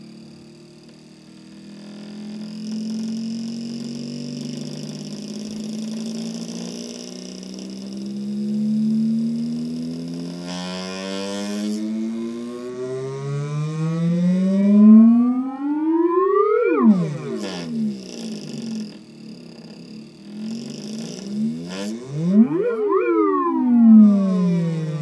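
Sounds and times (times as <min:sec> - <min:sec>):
buzzy tone gliding upward: 0:11.8 - 0:18.8, 0:21.4 - 0:25.0.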